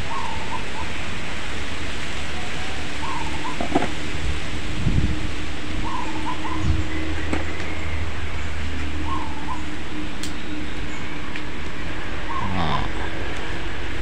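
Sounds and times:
bird calling: 0:00.0 - 0:01.2, 0:02.4 - 0:04.1, 0:05.6 - 0:11.4, 0:12.1 - 0:13.2
low hum: 0:00.0 - 0:14.0.

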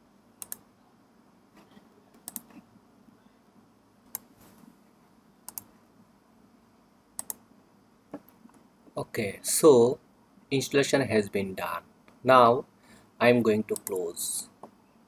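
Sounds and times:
computer keys clicking: 0:00.4 - 0:00.6, 0:02.1 - 0:02.6, 0:05.5 - 0:05.7, 0:07.2 - 0:07.4, 0:13.7 - 0:14.1.

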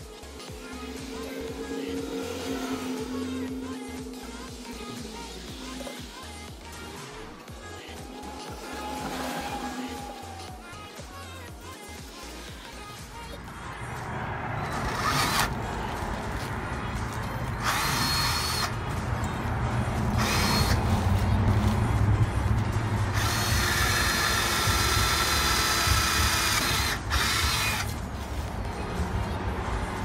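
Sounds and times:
cordless drill whining: 0:00.0 - 0:11.4, 0:14.7 - 0:15.6, 0:17.6 - 0:18.8, 0:20.2 - 0:20.8, 0:23.1 - 0:27.9.

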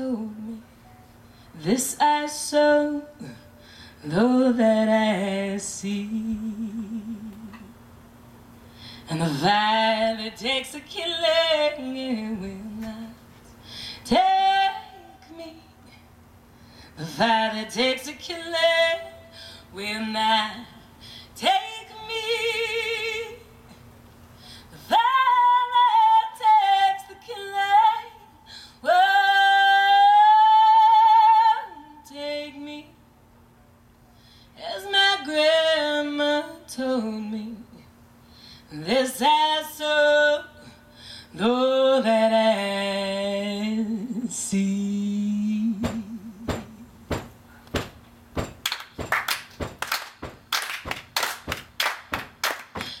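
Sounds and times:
woman singing with vibrato: 0:00.0 - 0:00.7, 0:01.5 - 0:07.8, 0:09.1 - 0:13.3, 0:14.0 - 0:16.0, 0:17.0 - 0:23.6, 0:24.7 - 0:33.1, 0:34.6 - 0:37.9, 0:38.7 - 0:47.3
people clapping a beat: 0:48.5 - 0:53.0.

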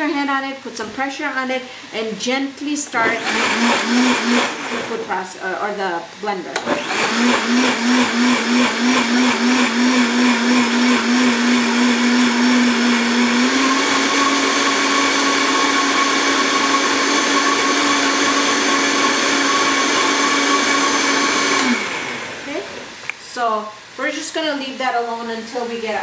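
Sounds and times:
blender motor running: 0:03.0 - 0:05.2, 0:06.6 - 0:23.0.

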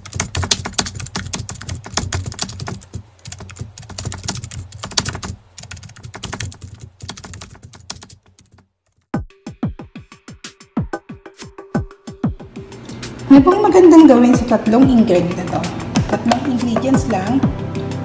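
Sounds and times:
computer keyboard typing: 0:00.0 - 0:09.1.

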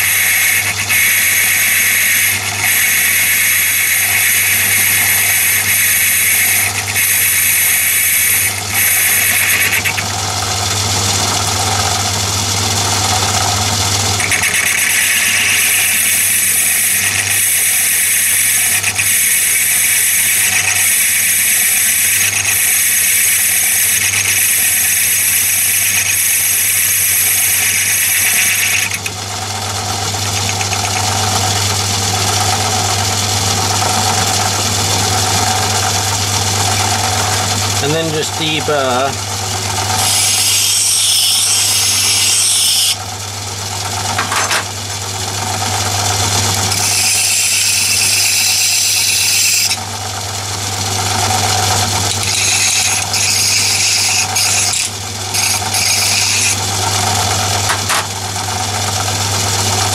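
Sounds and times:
high cutting noise: 0:00.0 - 0:10.2, 0:14.2 - 0:29.1, 0:52.1 - 0:56.6
lathe motor hum: 0:00.0 - 0:59.9.

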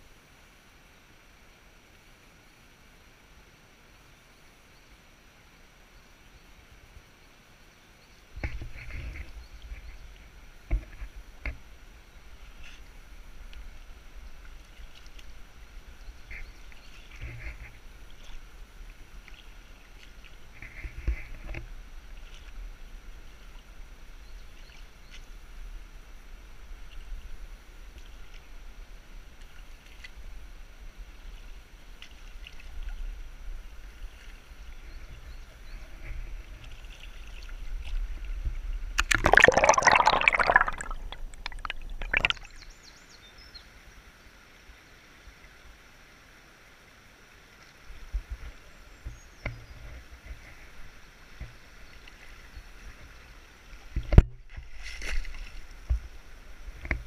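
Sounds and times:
flowing river water: 0:00.0 - 0:57.0
water splashing around wading legs: 0:35.2 - 0:42.8, 0:51.3 - 0:57.0.

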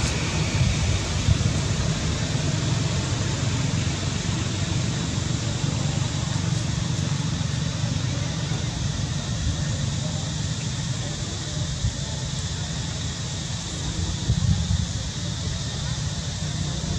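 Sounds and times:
even hiss: 0:00.0 - 0:16.9.

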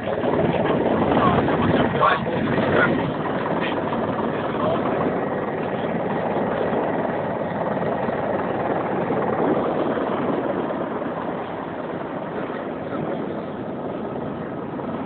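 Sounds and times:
helicopter engine and rotor: 0:00.0 - 0:15.0.

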